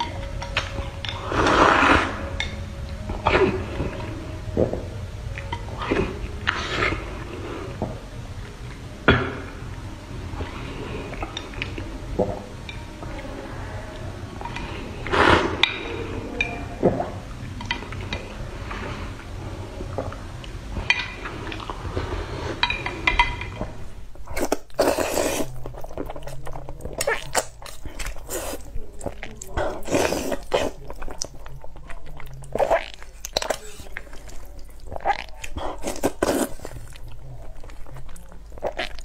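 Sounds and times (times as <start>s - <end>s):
noodles slurped and chewed: 0.0s - 4.4s, 5.4s - 8.0s, 20.0s - 39.0s.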